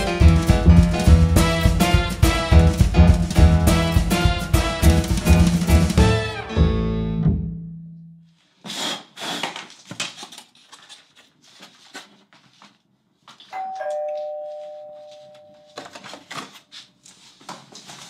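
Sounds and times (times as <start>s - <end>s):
two-note doorbell chime: 13.6s - 15.8s.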